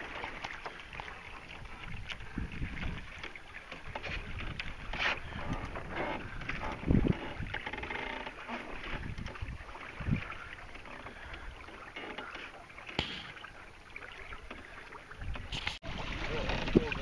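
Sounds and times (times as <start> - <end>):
water splashing against hull: 0.0 - 17.0
wind rumbling on microphone: 1.4 - 7.7, 8.7 - 10.8, 15.2 - 17.0.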